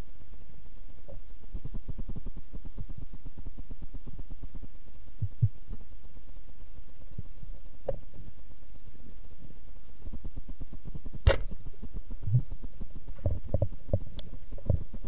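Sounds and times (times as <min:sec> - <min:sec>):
underwater low rumble: 0:01.0 - 0:15.0
faint irregular clicks: 0:07.0 - 0:08.4, 0:09.8 - 0:15.0
sharp knock: 0:11.2 - 0:11.6.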